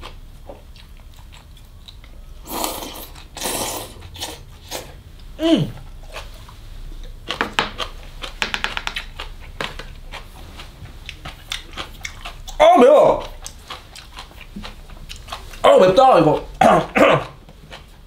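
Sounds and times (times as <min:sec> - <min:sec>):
person chewing: 0:00.0 - 0:18.0
person sucking in food: 0:02.3 - 0:06.3.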